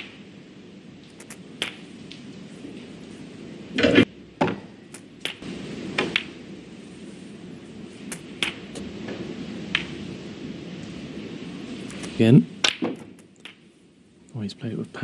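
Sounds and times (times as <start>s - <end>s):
snooker balls clicking: 1.0s - 2.2s, 4.5s - 5.4s, 6.0s - 6.4s, 11.9s - 13.6s.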